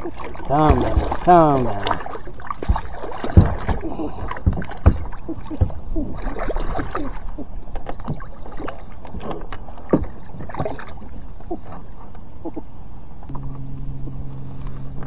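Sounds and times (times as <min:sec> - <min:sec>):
fish splashing at surface: 0:00.0 - 0:07.2
knocks against kayak hull: 0:00.6 - 0:01.3, 0:02.6 - 0:05.8.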